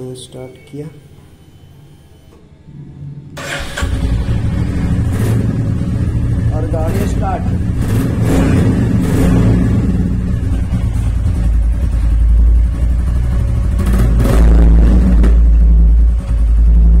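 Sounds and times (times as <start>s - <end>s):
motorcycle engine idling: 3.9s - 17.0s.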